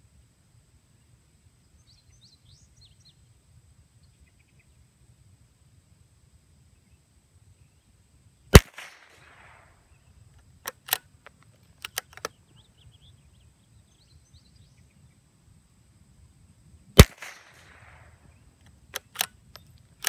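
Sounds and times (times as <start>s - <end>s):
rifle shot with echo: 8.5s - 9.8s, 17.0s - 18.2s
rifle bolt clicks: 10.6s - 12.3s, 18.9s - 19.8s.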